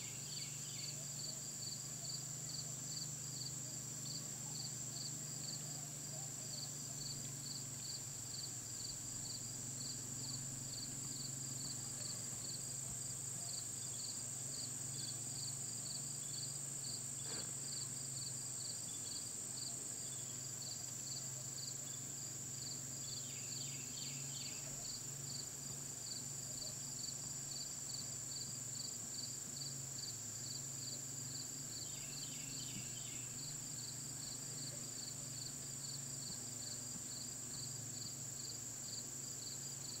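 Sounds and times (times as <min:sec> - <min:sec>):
insect high-pitched trill: 0:00.0 - 0:05.7, 0:06.6 - 0:40.0
insect chirps: 0:00.0 - 0:40.0.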